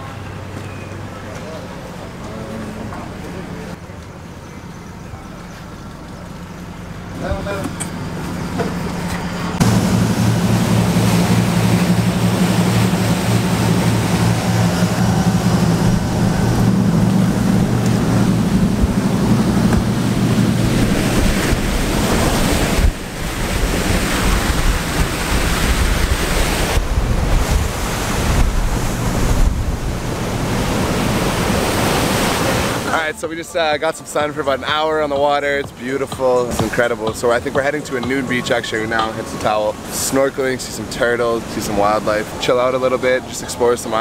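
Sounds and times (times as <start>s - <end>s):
boat engine drone: 0.0s - 44.0s
churning wake rushing: 0.0s - 44.0s
wind buffeting microphone: 7.3s - 32.9s.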